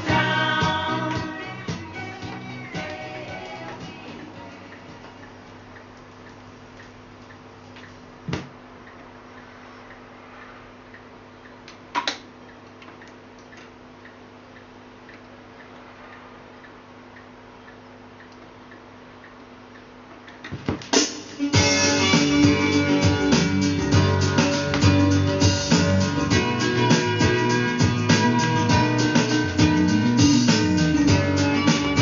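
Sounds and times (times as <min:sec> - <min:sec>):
music from a record: 0:00.0 - 0:13.8, 0:20.5 - 0:32.0
record changer mechanism hum: 0:00.0 - 0:32.0
stylus clicks on record: 0:02.2 - 0:21.1.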